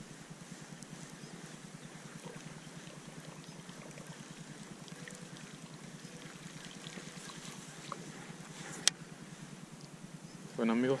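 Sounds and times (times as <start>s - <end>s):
low hum: 0.0s - 11.0s
water lapping around boat hull: 1.9s - 8.9s.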